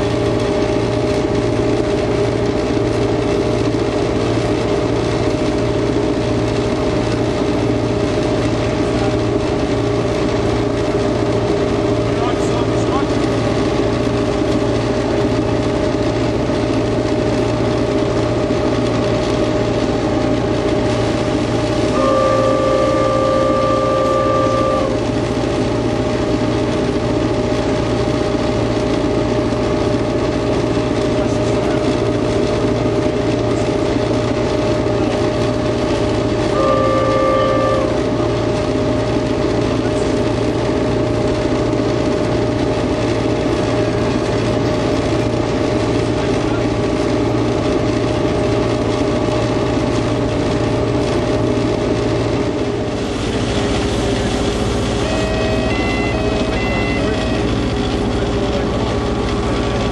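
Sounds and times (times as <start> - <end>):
locomotive engine running: 0.0 - 59.9
two-note train horn: 21.7 - 26.1, 36.4 - 38.6, 54.8 - 58.6.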